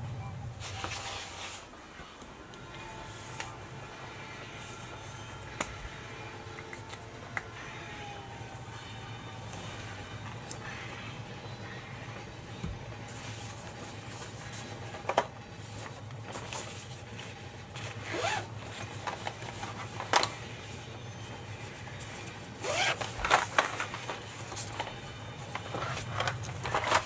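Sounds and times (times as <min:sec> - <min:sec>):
steady low hum: 0:00.0 - 0:27.0
zipper being pulled: 0:18.0 - 0:18.5, 0:22.6 - 0:23.1.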